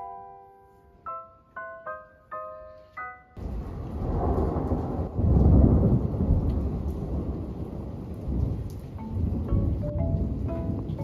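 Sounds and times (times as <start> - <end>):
steady rain hiss: 3.4 - 11.0
thunder rumbling: 3.4 - 11.0.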